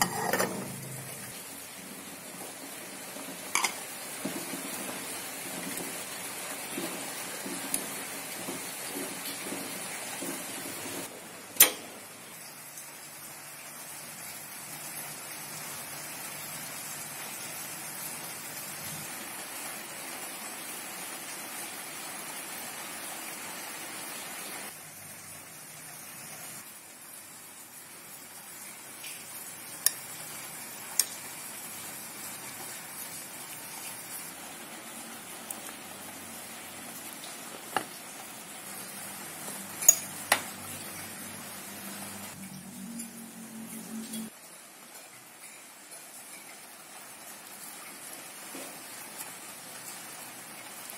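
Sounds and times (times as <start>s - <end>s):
fork prodding potatoes: 0.0s - 1.0s
water boiling and bubbling: 0.0s - 50.9s.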